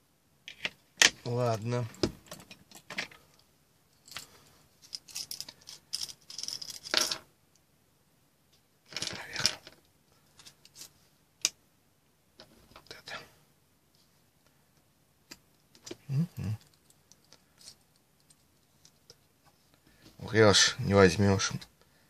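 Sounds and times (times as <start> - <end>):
small metal clicks and rattles: 4.9 - 7.2.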